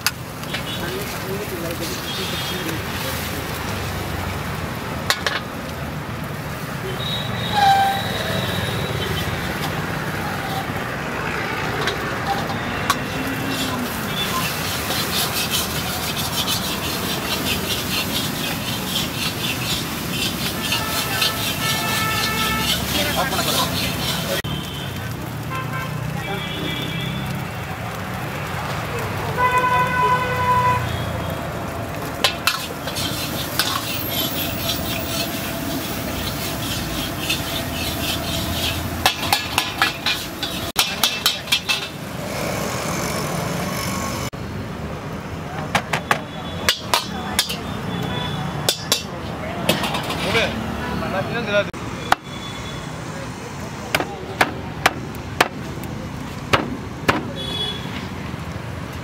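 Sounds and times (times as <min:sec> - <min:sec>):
metal ladle scraping a wok: 0:07.5 - 0:10.8, 0:11.5 - 0:24.4, 0:32.2 - 0:44.3, 0:46.7 - 0:48.0, 0:48.6 - 0:50.6
metal ladle clanking on wok: 0:32.2 - 0:35.6, 0:36.2 - 0:42.0, 0:46.7 - 0:47.7, 0:48.6 - 0:50.4.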